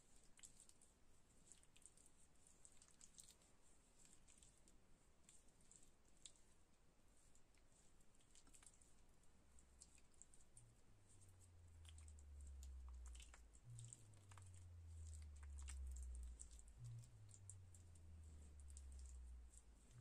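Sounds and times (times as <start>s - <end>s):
wet paste squishing on skin: 7.3s - 20.0s
faint low drone: 10.6s - 20.0s.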